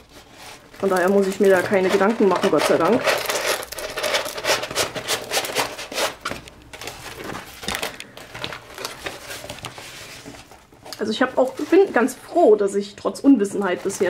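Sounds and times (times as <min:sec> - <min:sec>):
canvas crinkling and rustling: 0:06.7 - 0:12.3.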